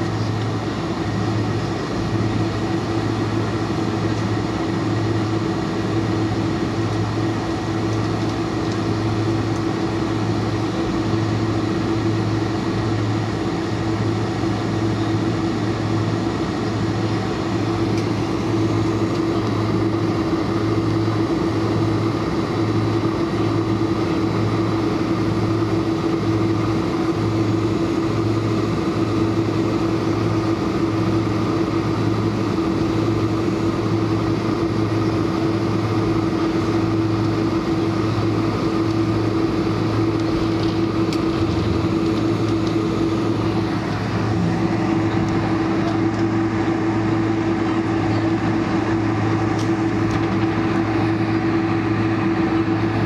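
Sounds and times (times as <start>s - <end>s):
airplane cabin drone: 0.0s - 53.0s
constant whine: 0.0s - 53.0s
pulsing low hum: 36.3s - 53.0s.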